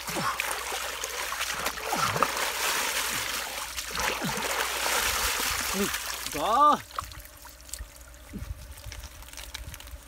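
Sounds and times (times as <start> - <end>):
hands squelching in wet mud: 0.0 - 7.1.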